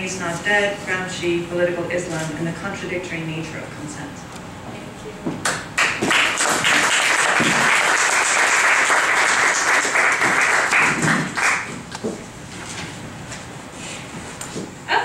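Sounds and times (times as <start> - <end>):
audience applauding: 5.8 - 11.8.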